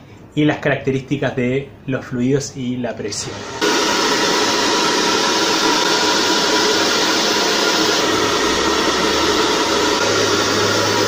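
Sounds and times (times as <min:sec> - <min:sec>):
hair dryer running: 0:03.2 - 0:11.0.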